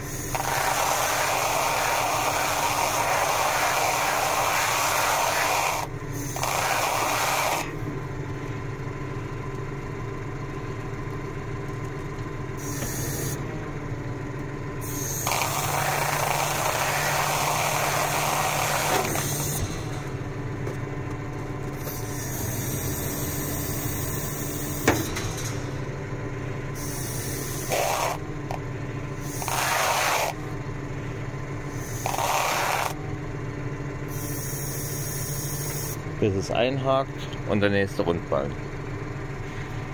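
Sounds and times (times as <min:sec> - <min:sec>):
tractor engine running: 0:00.0 - 0:39.9
hydraulic hiss: 0:21.8 - 0:25.3, 0:26.8 - 0:28.2, 0:29.2 - 0:30.4, 0:31.7 - 0:33.0, 0:34.1 - 0:36.0.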